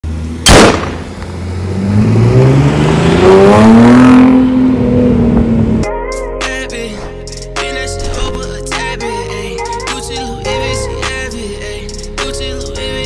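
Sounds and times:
car engine accelerating: 0.0 - 5.8
sharp loud burst: 0.4 - 1.2.

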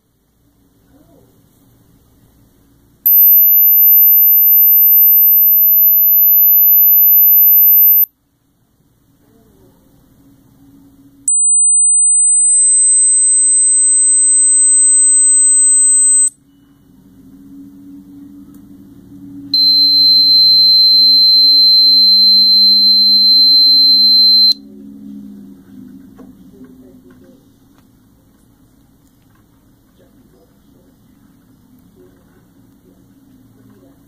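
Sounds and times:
lower steady whistle: 3.1 - 8.1, 19.4 - 24.6
very high steady whistle: 19.6 - 24.6.

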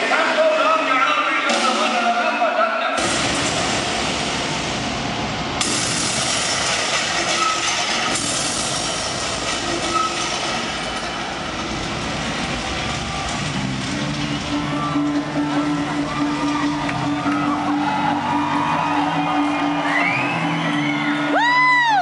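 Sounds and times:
crowd cheering and shouting: 9.8 - 22.0.

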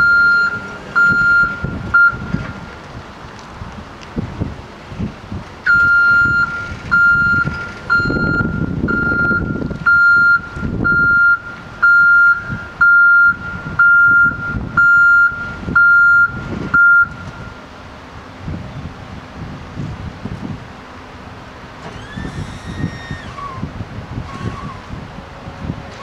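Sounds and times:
truck backup alarm beeping: 0.0 - 2.7, 5.6 - 17.8
truck engine rumble: 0.0 - 26.0.

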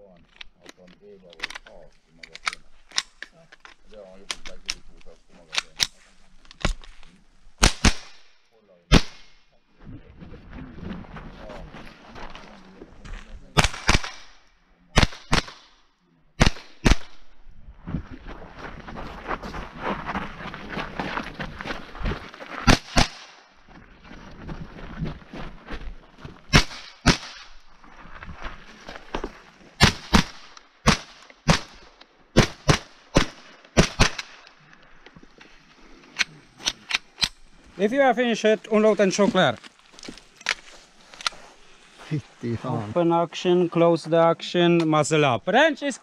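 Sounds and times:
rifle shots: 7.6 - 8.3, 8.9 - 9.4, 13.6 - 14.4, 15.0 - 15.7, 16.4 - 17.3, 22.6 - 23.4, 26.5 - 27.6, 29.8 - 34.4.

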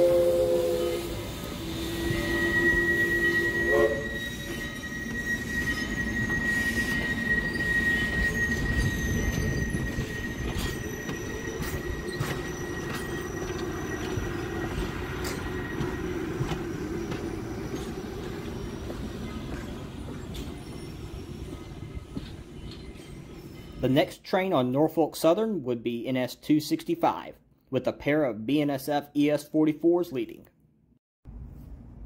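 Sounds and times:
train wheel squeal: 0.0 - 23.9
train rumble: 0.0 - 24.0.

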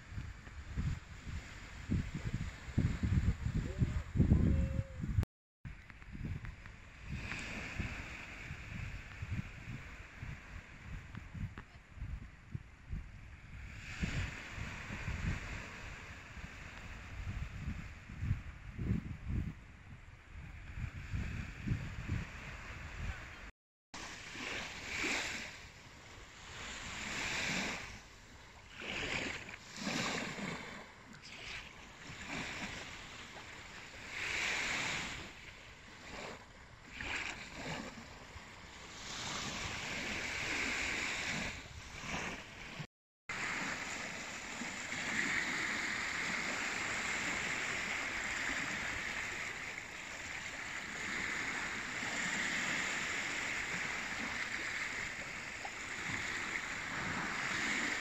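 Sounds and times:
small waves lapping on shore: 0.0 - 4.2, 5.7 - 18.6, 20.2 - 58.0
stream water rippling: 24.0 - 58.0.

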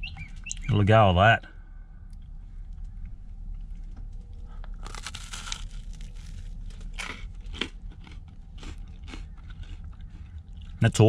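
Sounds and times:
low hum: 0.0 - 11.0
crunching toasted bread: 4.2 - 10.8
chewing: 4.6 - 10.8.

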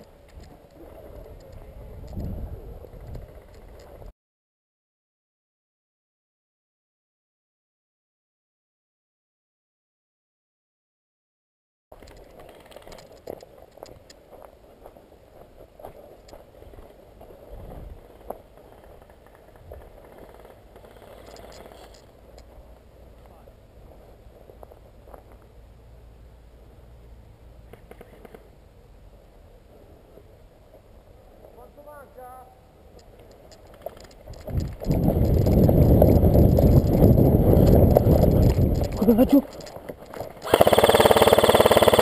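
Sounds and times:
wind rumble on microphone: 0.0 - 4.1, 16.5 - 18.4, 34.1 - 39.8
sharp clicks: 20.2 - 22.5, 33.0 - 42.0.

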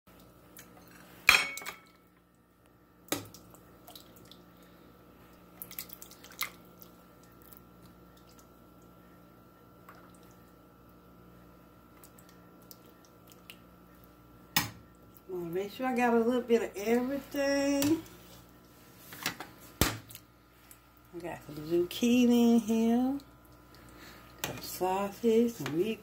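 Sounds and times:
faint steady hum: 0.1 - 26.0
small drips and taps: 3.1 - 4.4, 5.6 - 9.0, 9.8 - 11.0, 11.9 - 14.1.

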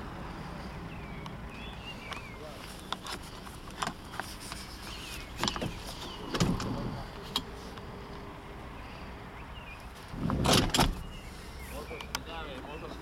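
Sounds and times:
car seat clicks and rattles: 5.2 - 7.5, 10.1 - 11.1.

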